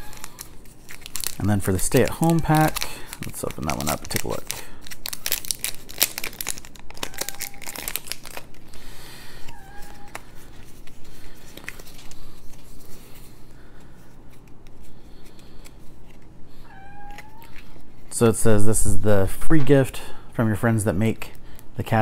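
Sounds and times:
wrapping tearing and crinkling: 0.0 - 16.3.

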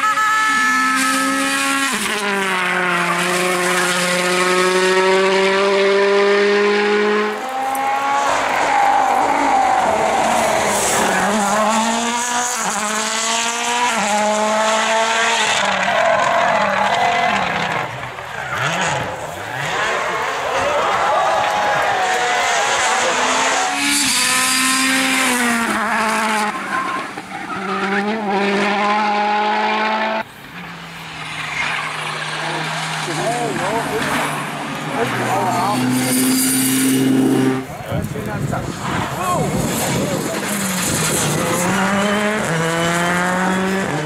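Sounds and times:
tyres squealing on tarmac: 0.0 - 1.5, 26.4 - 28.1
rally car engines at full throttle: 0.0 - 44.0.

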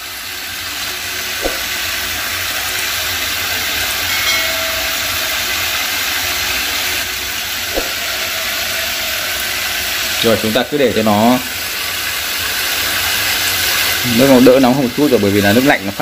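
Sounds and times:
tap water splashing into sink: 1.4 - 1.8.

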